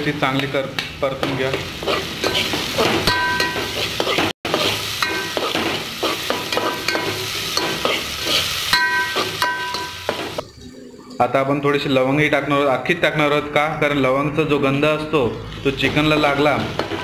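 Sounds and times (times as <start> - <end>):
onions sizzling in hot oil: 0.0 - 10.9, 15.5 - 17.0
pot ringing: 3.1 - 3.7, 5.0 - 5.5, 6.5 - 7.8, 8.7 - 10.6.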